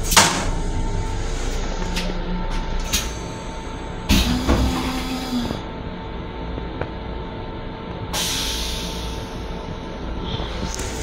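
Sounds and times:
railcar hum: 0:00.0 - 0:11.0
toilet flushing rush: 0:02.9 - 0:05.7.

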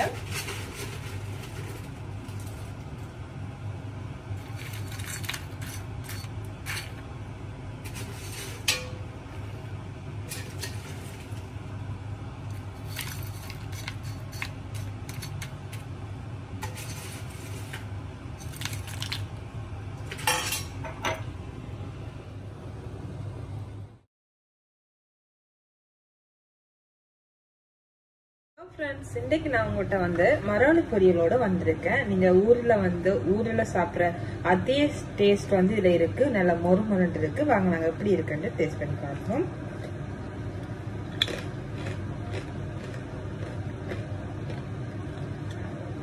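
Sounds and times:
chips clinking and scraping in dish: 0:00.0 - 0:02.9, 0:04.4 - 0:07.0, 0:10.3 - 0:11.4, 0:12.5 - 0:15.9, 0:16.6 - 0:19.3.

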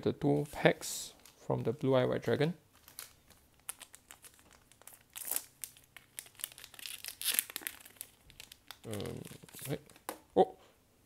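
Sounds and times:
foil wrapper tearing and crinkling: 0:02.8 - 0:09.9.

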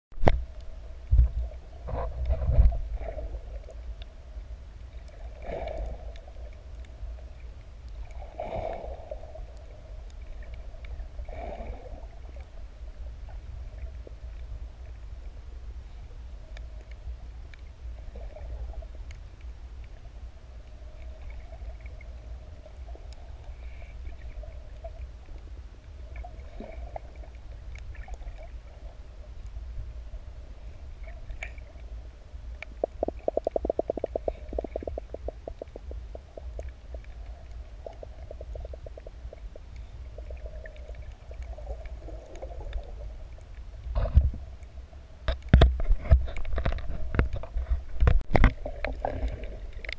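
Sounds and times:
underwater water rumble: 0:00.1 - 0:49.9
rapid clicking pulses: 0:32.8 - 0:36.7.

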